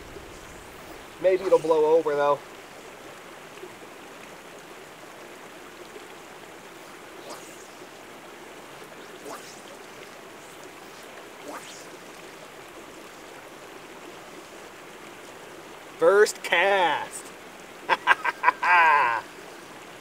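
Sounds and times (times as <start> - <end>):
fly line swishing: 0.1 - 1.8, 6.8 - 8.0, 8.8 - 13.4.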